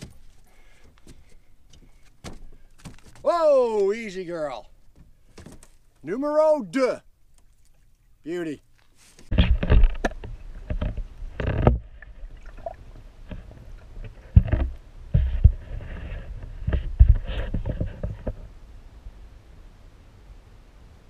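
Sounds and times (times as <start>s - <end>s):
muffled underwater sloshing: 7.1s - 16.0s
knocks and thumps: 9.3s - 12.0s, 13.3s - 18.5s.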